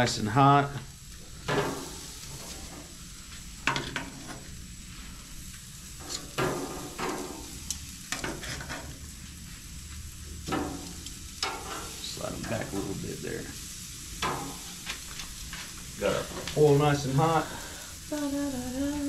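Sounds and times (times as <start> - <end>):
vegetables sizzling on a grill: 0.0 - 19.0.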